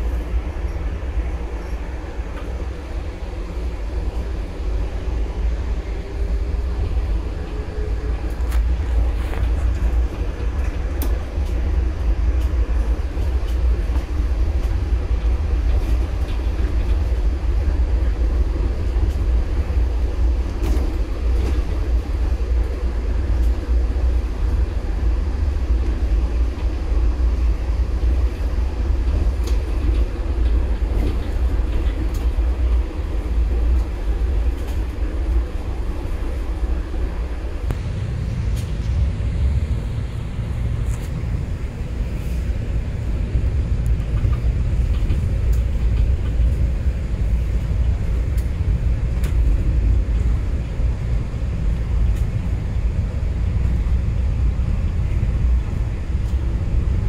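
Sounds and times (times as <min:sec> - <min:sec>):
train rumbling: 0:00.0 - 0:57.0.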